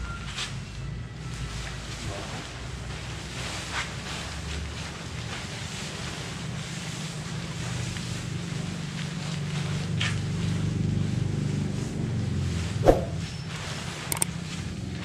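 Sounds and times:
tent flysheet rustling and flapping: 1.5 - 15.0
steady low rumble: 12.6 - 13.3.

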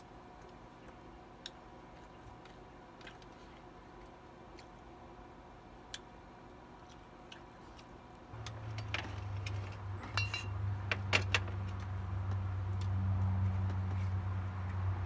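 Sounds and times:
low hum: 8.3 - 15.0
glass bottle clinks: 10.0 - 10.6.

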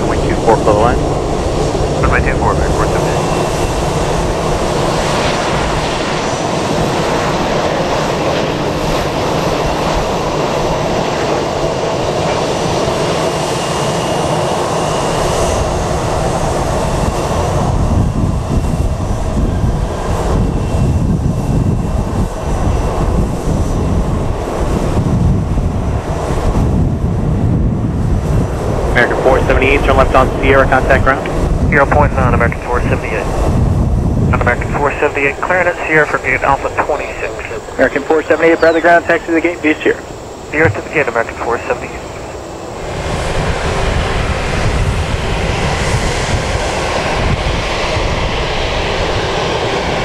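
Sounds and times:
jet engines running: 0.0 - 50.0
jet rolling on runway: 0.0 - 50.0.

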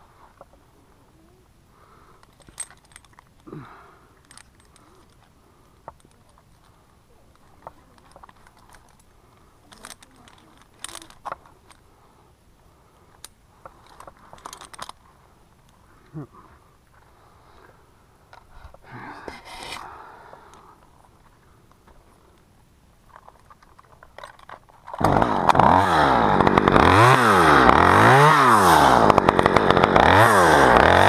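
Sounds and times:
metal hardware clinking: 2.2 - 3.5, 4.2 - 6.7, 9.7 - 11.8, 13.2 - 15.0.

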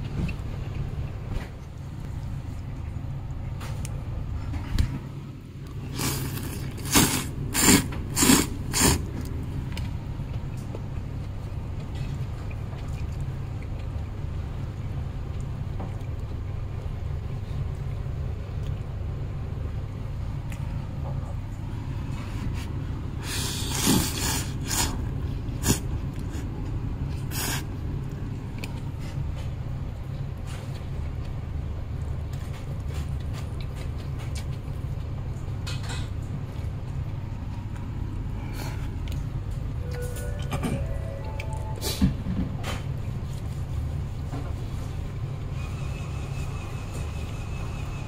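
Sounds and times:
steady low hum: 0.0 - 48.0
person slurping noodles: 5.8 - 9.2, 23.2 - 26.5.

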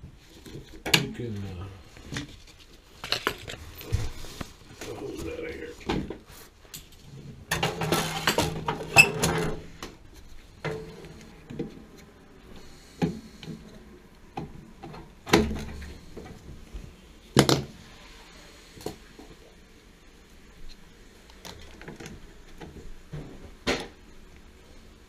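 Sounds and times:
gloved hands rustling: 1.8 - 7.0.

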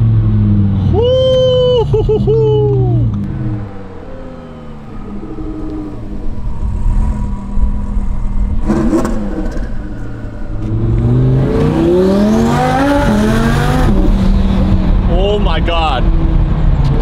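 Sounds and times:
sports car engine revving: 2.7 - 15.1.

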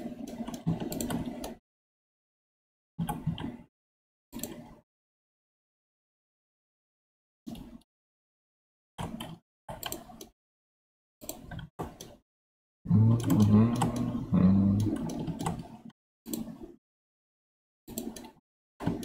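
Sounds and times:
keyboard and mouse clicks: 0.0 - 1.6, 3.0 - 3.7, 4.4 - 4.8, 7.5 - 7.8, 9.0 - 10.4, 11.2 - 12.2, 12.9 - 16.8, 17.9 - 19.0
low pitched hum: 12.9 - 15.0.

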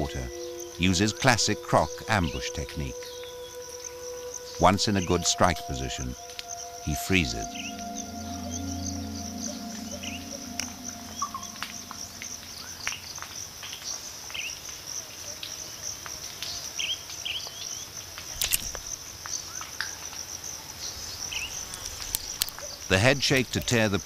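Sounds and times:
low music drone: 0.0 - 13.4
high-pitched insect chorus: 0.0 - 24.0.

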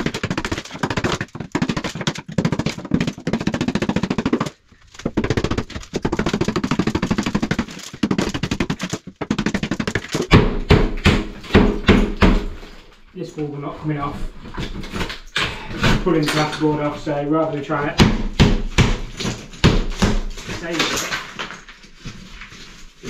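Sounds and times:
chisel chipping tiles: 0.0 - 12.4, 18.0 - 21.5.

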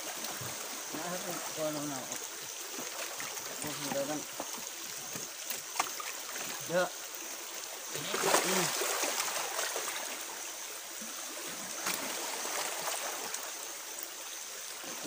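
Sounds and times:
water splashing against boat hull: 0.0 - 6.7.

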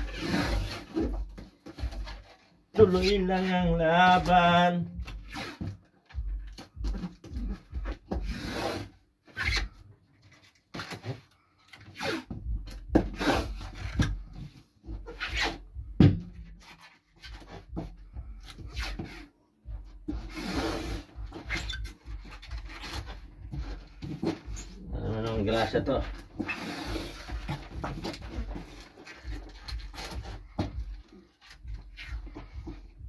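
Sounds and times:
hand rubbing tape on cardboard: 5.2 - 9.7, 18.4 - 33.0.

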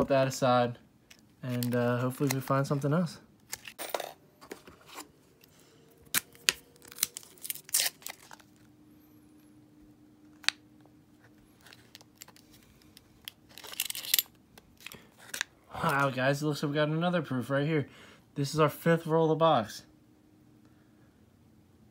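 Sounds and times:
paper wrappers tearing and crinkling: 1.4 - 2.9, 6.1 - 8.7.

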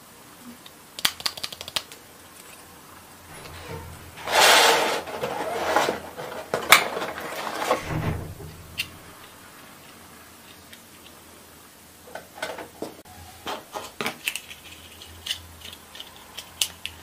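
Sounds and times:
low thump: 7.8 - 9.2.

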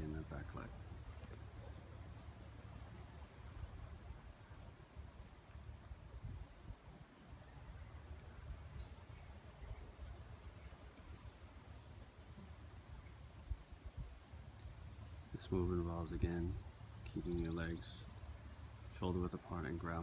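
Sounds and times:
low steady rumble: 0.0 - 20.0
faint high chirps: 4.6 - 13.6.

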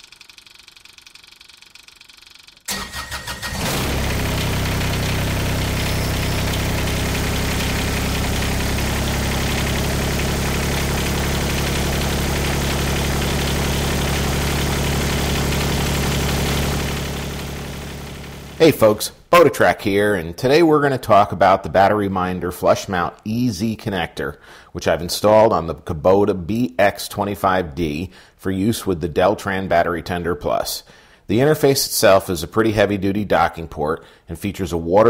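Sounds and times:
starter cranking engine: 0.0 - 18.8
diesel engine idling: 2.7 - 18.8.

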